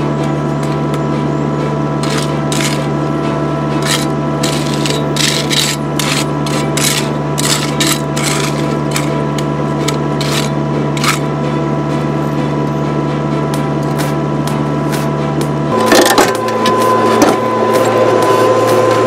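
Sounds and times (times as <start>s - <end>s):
tool scraping crushed stone: 2.0s - 3.0s, 3.8s - 11.3s.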